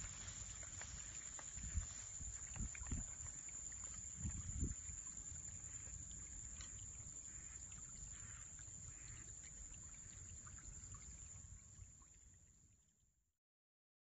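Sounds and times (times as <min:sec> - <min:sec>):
footsteps through grass: 0:00.0 - 0:02.9
wind rumbling on microphone: 0:00.0 - 0:06.9.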